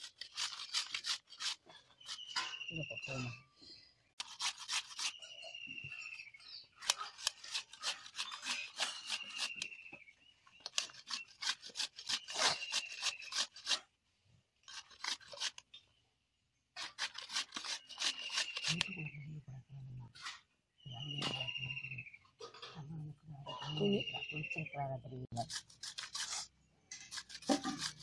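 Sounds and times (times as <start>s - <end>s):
carrot rasping on metal grater: 0.0s - 2.3s, 4.2s - 5.2s, 6.8s - 9.7s, 10.7s - 13.8s, 14.6s - 15.6s, 16.8s - 18.9s, 25.4s - 28.0s.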